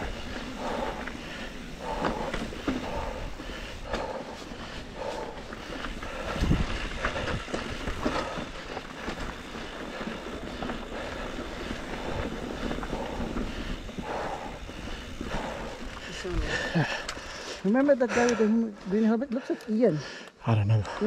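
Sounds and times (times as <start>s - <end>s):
tyres rumbling over dirt and rocks: 0.0s - 18.2s
wind on microphone: 6.1s - 8.4s.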